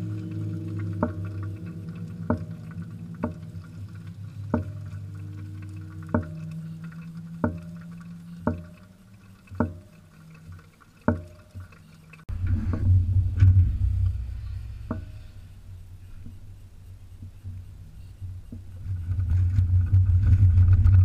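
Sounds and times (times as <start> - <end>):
liquid drops plinking: 0.0 - 12.2
low steady hum: 0.0 - 21.0
vehicle engine rumbling: 0.0 - 21.0.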